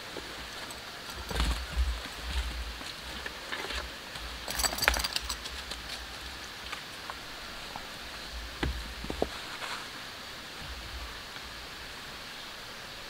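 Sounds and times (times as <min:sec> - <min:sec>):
steady outdoor hiss: 0:00.0 - 0:13.0
wooden logs knocking together: 0:01.1 - 0:06.0.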